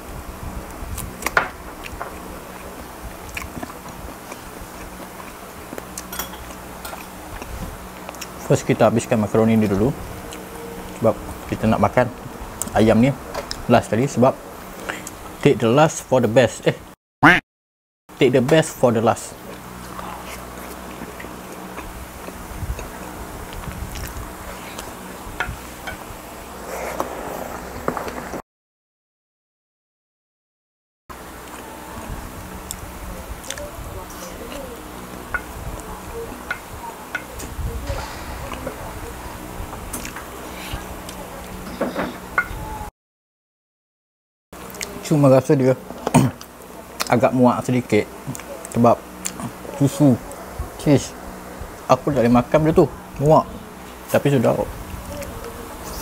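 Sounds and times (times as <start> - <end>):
man chewing with wet crunches: 0.7 - 8.4, 12.6 - 13.6, 19.4 - 25.8, 31.4 - 38.7, 39.4 - 42.3, 44.6 - 45.1, 46.0 - 47.2, 48.1 - 50.6.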